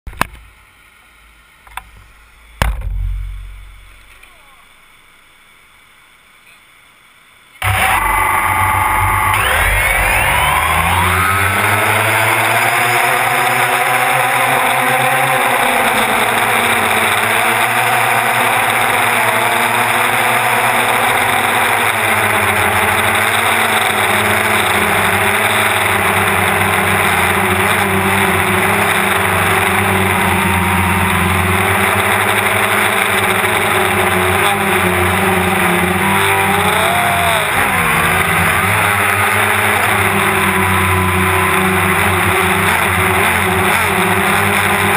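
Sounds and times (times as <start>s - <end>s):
drone propellers buzzing: 0.1s - 5.8s, 7.6s - 44.9s
steady hiss: 0.2s - 7.6s.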